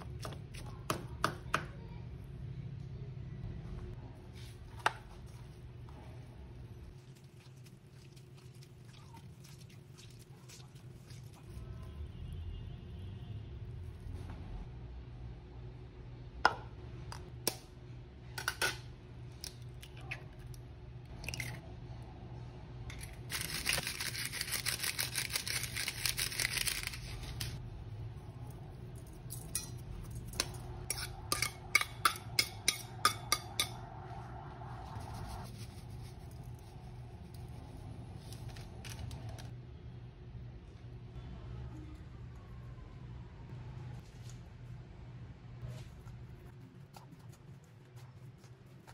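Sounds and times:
steady low hum: 26.8 - 48.9.

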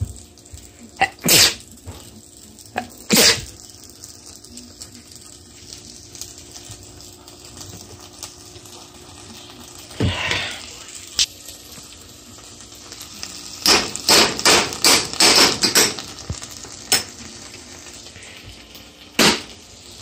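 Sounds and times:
person sneezing: 1.0 - 1.6, 3.1 - 3.5.

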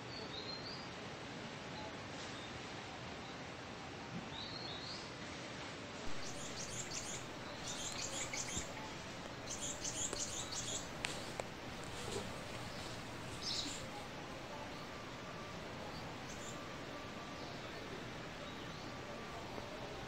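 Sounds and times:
steady outdoor hiss: 0.0 - 20.0
small birds chirping: 6.1 - 20.0.

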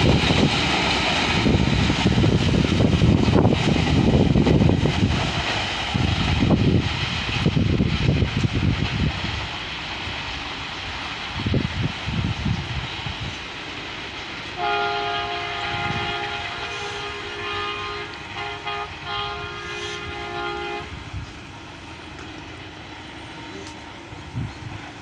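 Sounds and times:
locomotive air horn chord: 14.6 - 21.0.

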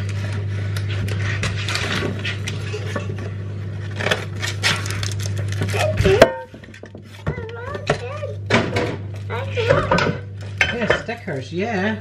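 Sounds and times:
items and packets rattling: 1.1 - 8.4.

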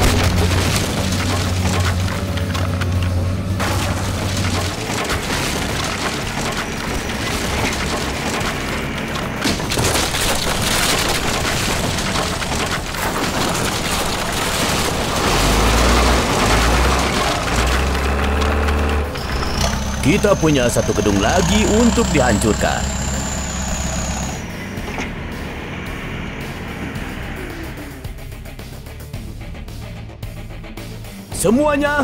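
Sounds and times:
timber cracking and splintering: 0.0 - 24.4
debris crashing: 0.0 - 25.3.

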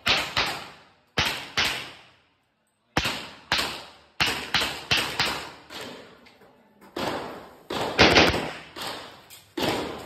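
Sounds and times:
handgun shots with echo: 7.0 - 10.0.

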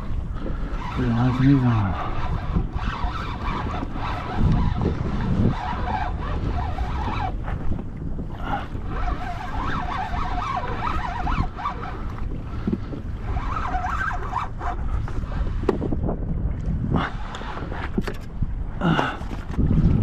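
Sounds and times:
wind buffeting microphone: 0.0 - 20.0
wavering high-pitched whine: 0.8 - 4.8, 8.9 - 12.2.

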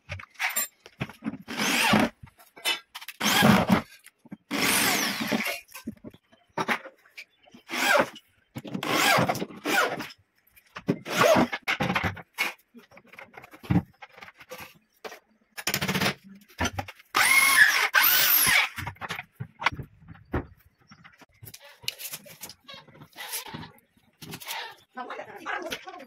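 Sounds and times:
power drill driving screws: 1.5 - 2.1, 3.1 - 3.8, 4.5 - 5.6, 7.7 - 8.2, 8.8 - 10.1, 17.1 - 18.8.

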